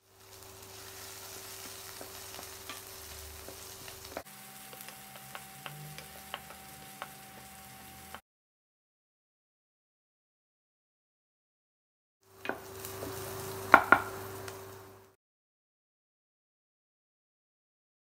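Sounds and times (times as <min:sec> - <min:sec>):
onions sizzling in hot oil: 0:00.0 - 0:08.2, 0:12.2 - 0:15.2
spatula clicking against pan: 0:04.7 - 0:07.5.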